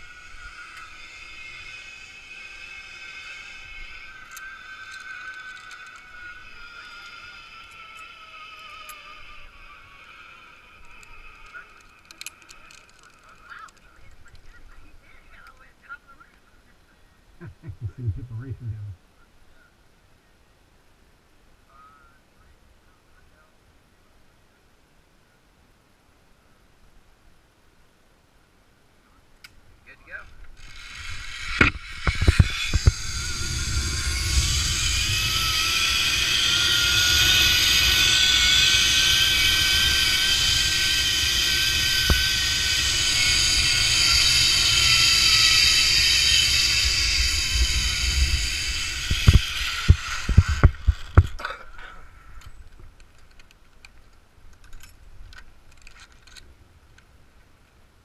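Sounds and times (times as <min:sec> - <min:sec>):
zipline pulleys whining on cable: 0:00.0 - 0:15.6, 0:30.0 - 0:52.7
wind on microphone: 0:31.0 - 0:51.4.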